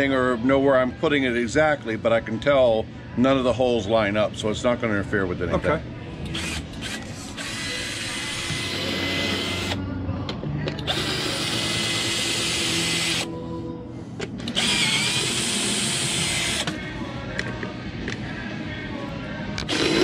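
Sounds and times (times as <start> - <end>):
cordless drill driving screws: 10.9 - 13.3, 14.5 - 16.8.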